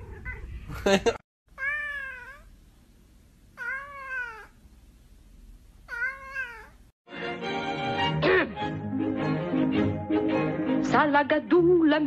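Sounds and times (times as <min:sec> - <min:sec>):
cat meowing: 0:01.5 - 0:02.5, 0:03.6 - 0:04.6, 0:05.9 - 0:06.9.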